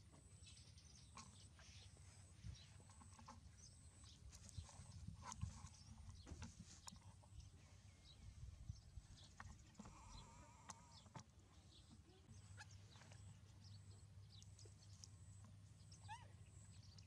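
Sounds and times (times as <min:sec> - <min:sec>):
low steady hum: 0:00.0 - 0:17.0
high-pitched animal squeaks: 0:16.0 - 0:16.4.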